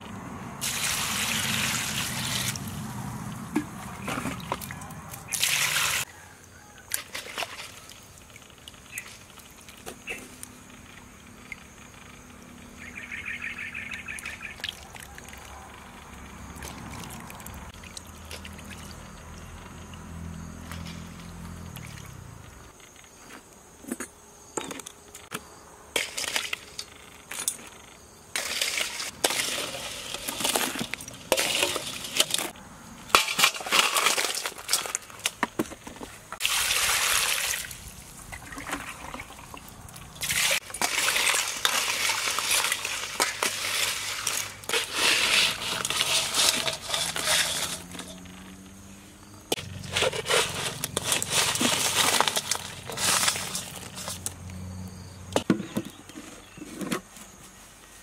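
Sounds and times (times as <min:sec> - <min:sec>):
crabs clattering in metal bowl: 0:28.4 - 0:36.5, 0:38.3 - 0:48.6, 0:49.5 - 0:54.3.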